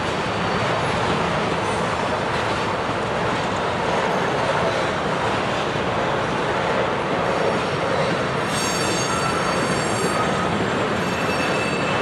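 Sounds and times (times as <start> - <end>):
train wheels rumbling on rails: 0.0 - 12.0
ringing wheel squeal: 8.4 - 12.0.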